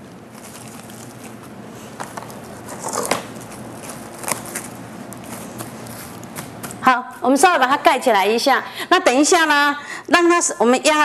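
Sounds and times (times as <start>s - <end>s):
plastic cling wrap crinkling: 0.0s - 6.8s.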